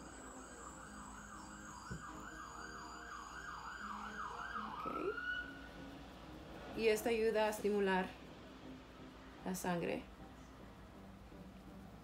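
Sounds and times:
siren yelping: 0.0 - 5.7.

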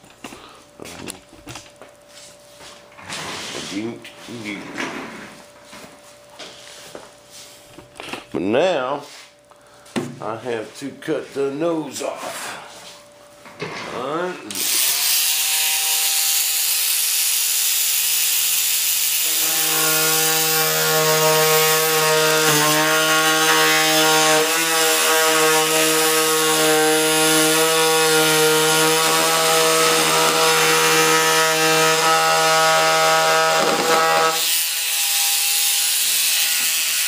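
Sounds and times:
rotary tool cutting fiberglass: 14.5 - 37.0.

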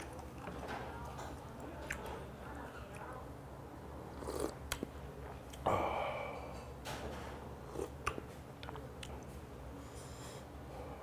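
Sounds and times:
person slurping broth: 4.1 - 4.6.

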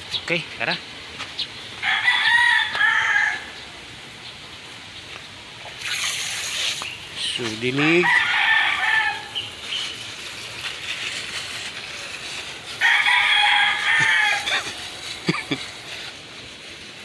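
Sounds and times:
rooster crowing: 1.8 - 3.8, 7.8 - 9.4, 12.7 - 15.0
hose spray nozzle hissing: 5.6 - 17.0.

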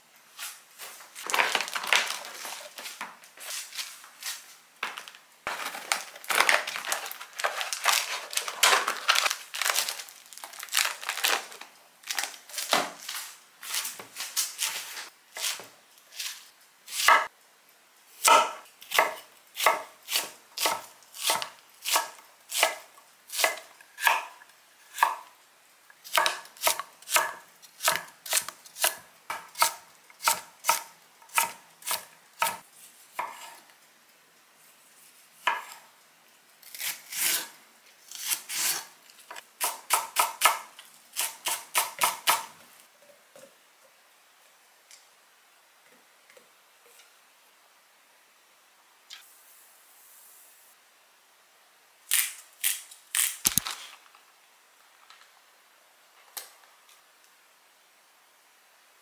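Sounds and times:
knife chopping vegetables on board: 16.9 - 17.3, 18.2 - 24.4, 26.1 - 32.6, 39.6 - 42.5.

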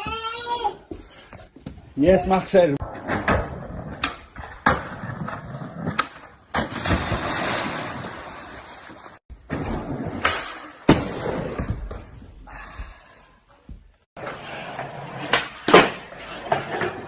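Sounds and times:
person splashing into pool: 6.6 - 9.2.

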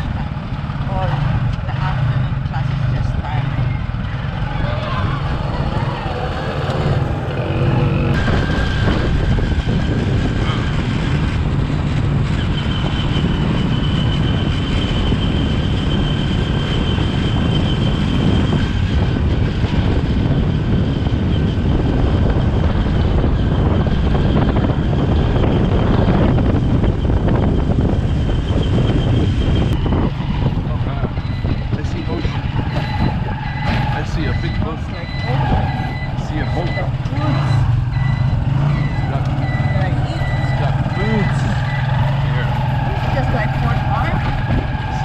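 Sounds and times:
motorcycle engine running: 0.0 - 33.2
wind noise on microphone: 3.7 - 45.0.

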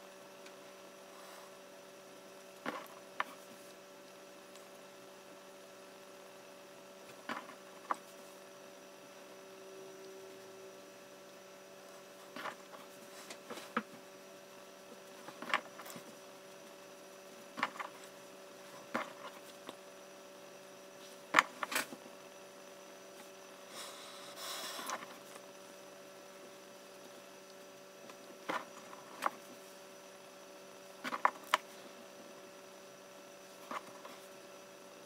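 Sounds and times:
electrical mains hum: 0.0 - 35.0.

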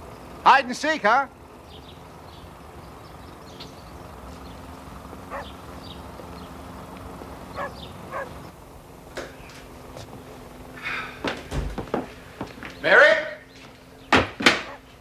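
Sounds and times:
steady background noise: 0.0 - 15.0
dog yipping: 5.3 - 5.5, 7.6 - 8.4, 14.6 - 14.9.

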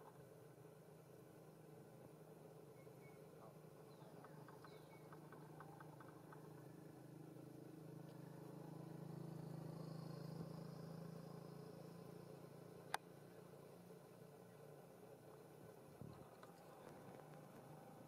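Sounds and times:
low steady hum: 0.0 - 18.0
faint ticks: 12.8 - 13.2, 16.1 - 18.0.

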